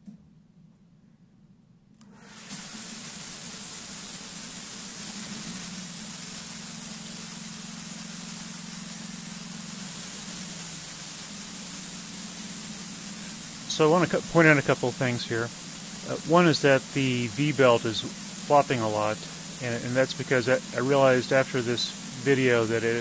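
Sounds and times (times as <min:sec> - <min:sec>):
gasoline engine roaring: 0:13.5 - 0:23.0.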